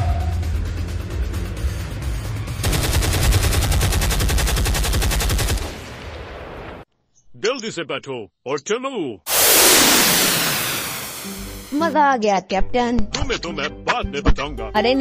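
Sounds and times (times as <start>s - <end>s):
rapid gunfire: 2.6s - 5.8s, 9.3s - 11.4s.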